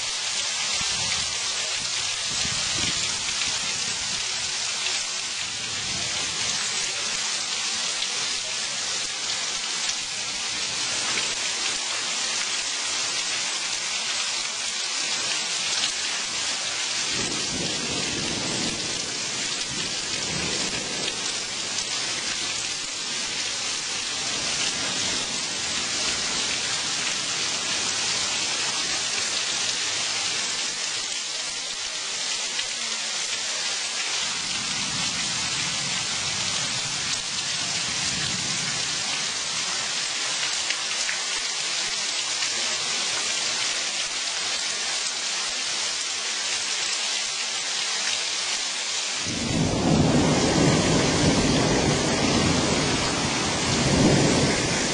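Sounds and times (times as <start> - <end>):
heavy rain: 0.0 - 54.9
thunder rumbling: 17.1 - 22.6, 49.2 - 54.9.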